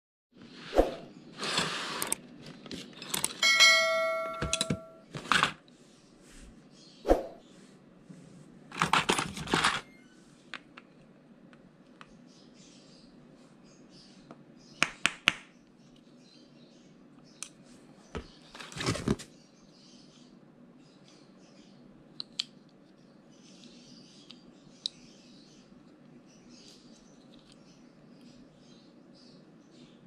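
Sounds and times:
metal hand tools clinking: 3.1 - 5.0.

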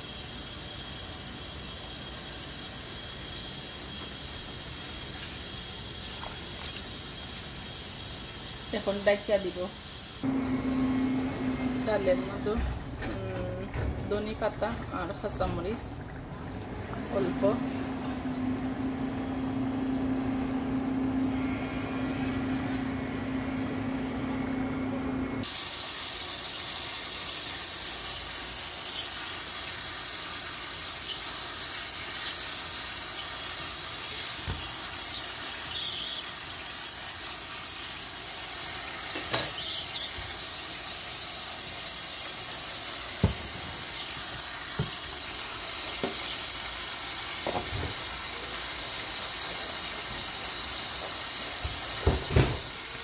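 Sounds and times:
tap running into steel sink: 34.4 - 34.8, 43.2 - 45.1, 45.8 - 46.4, 47.4 - 48.1, 51.0 - 52.8.

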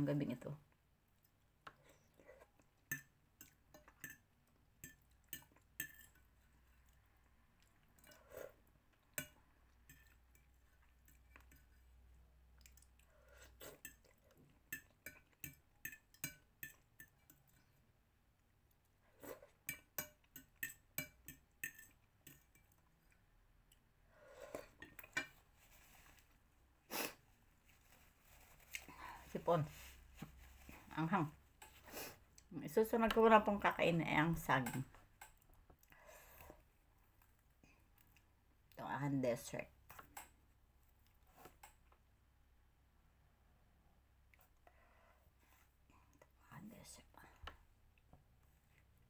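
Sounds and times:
faint chewing: 0.7 - 26.4, 27.1 - 30.9, 35.1 - 38.8.

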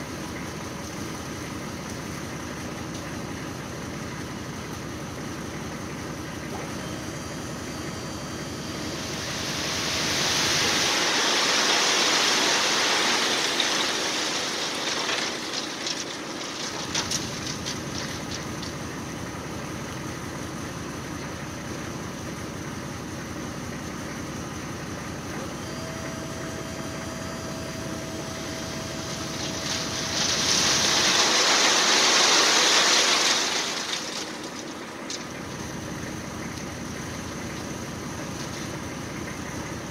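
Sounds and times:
dump truck engine idling: 0.0 - 39.9
rock sliding and pouring: 8.9 - 19.0, 28.7 - 38.9
stones clattering: 10.9 - 18.8, 29.1 - 35.7.

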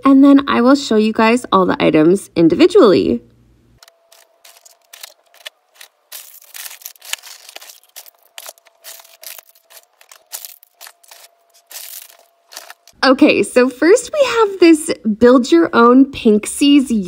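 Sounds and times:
bag and plastic packaging rustling: 3.9 - 13.0.

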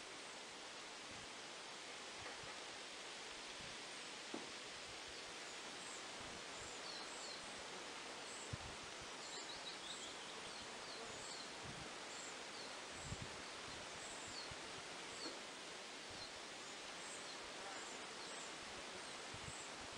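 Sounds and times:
steady background hiss: 0.0 - 19.9
small birds chirping: 8.2 - 15.5.

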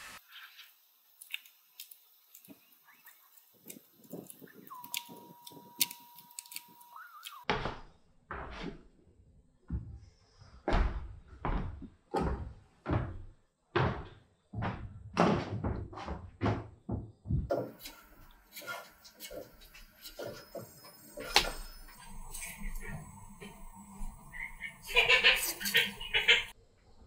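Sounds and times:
loud wooden thuds: 10.7 - 17.7.

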